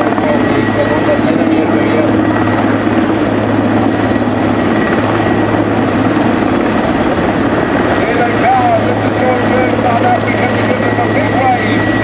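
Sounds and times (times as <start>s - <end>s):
helicopter rotor thrum: 0.0s - 12.0s
turbine whine: 0.0s - 12.0s.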